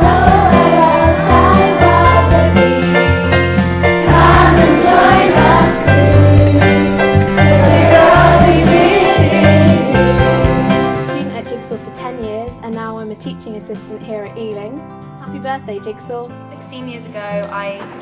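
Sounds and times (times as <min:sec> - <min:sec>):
young voices singing in unison: 0:00.0 - 0:03.0, 0:04.0 - 0:11.0
accompaniment with bass line: 0:00.0 - 0:11.4.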